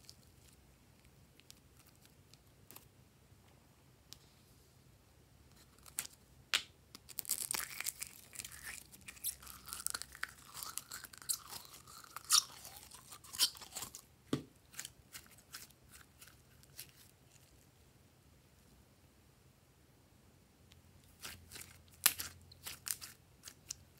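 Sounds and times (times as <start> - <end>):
slime squelching: 7.1 - 14.1, 21.1 - 23.8.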